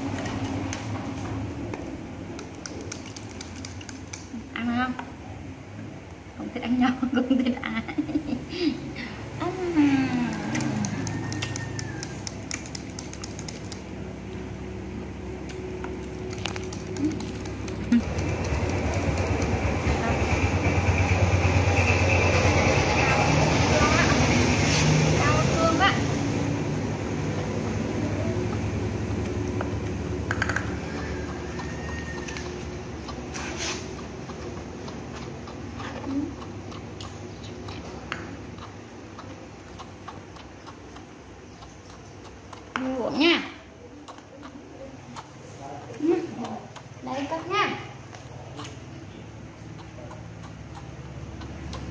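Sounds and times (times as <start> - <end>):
steady low hum: 0.0 - 51.9
baby monkey sucking on bottle teat: 9.6 - 14.0, 15.4 - 51.9.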